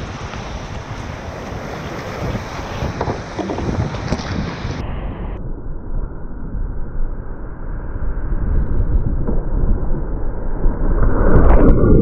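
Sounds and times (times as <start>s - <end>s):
waterfall roaring: 0.0s - 4.6s.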